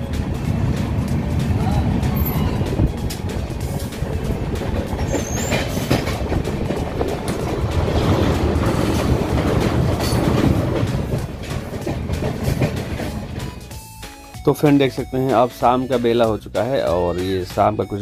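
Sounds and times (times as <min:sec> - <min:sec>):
train wheels rumbling on track: 0:00.0 - 0:16.5
clacks over rail joints: 0:00.1 - 0:13.8.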